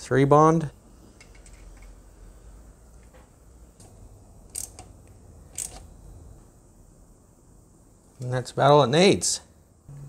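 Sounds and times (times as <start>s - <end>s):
socket ratchet clicking: 4.5s - 4.9s, 5.5s - 5.9s.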